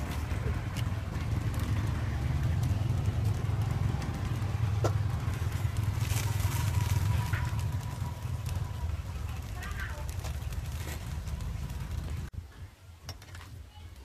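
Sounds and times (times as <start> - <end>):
leafy greens snapping and rustling: 3.0 - 12.3.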